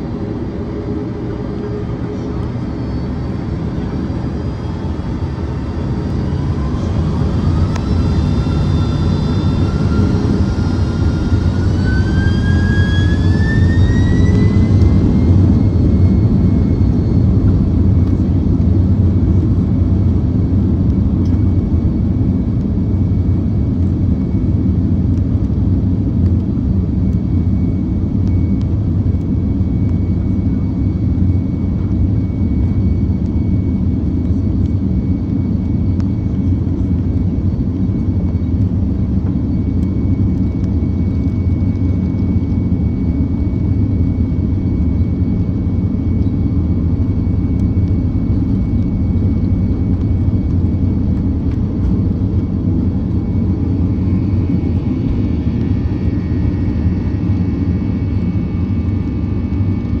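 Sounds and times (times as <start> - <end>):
whining tones: 0.0 - 19.2
jet engine rumble in cabin: 0.0 - 60.0
thin high whine: 1.6 - 17.0.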